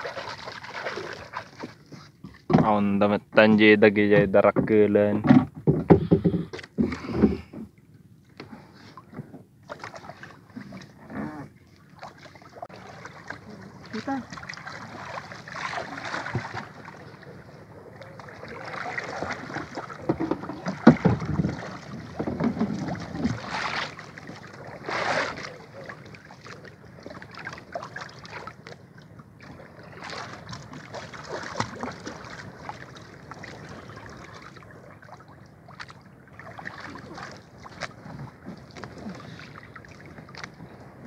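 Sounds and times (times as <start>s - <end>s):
water splashing against boat: 0.0s - 41.0s.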